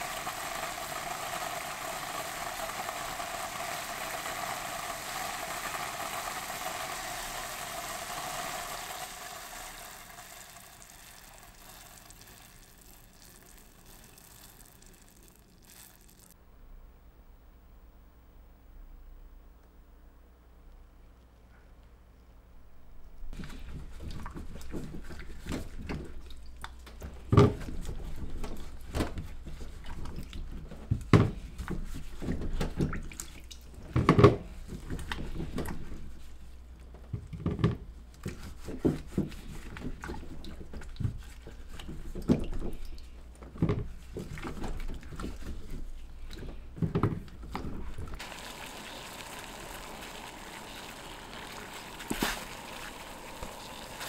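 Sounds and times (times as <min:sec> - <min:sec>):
water boiling: 0:00.0 - 0:16.4, 0:23.3 - 0:54.0
water splashing in a bowl: 0:00.0 - 0:16.4, 0:23.5 - 0:34.1, 0:47.4 - 0:54.0.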